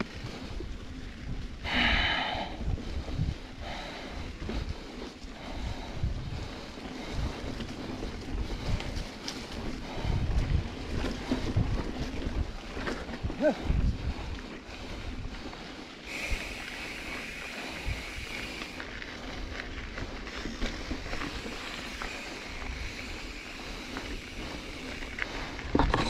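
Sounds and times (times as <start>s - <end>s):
wind on microphone: 0.0s - 15.5s
bike tyres rolling on dirt: 0.0s - 26.0s.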